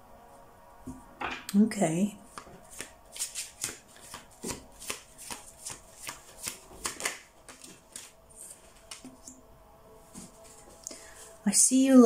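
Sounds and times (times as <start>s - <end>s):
cards being shuffled: 2.3s - 9.3s.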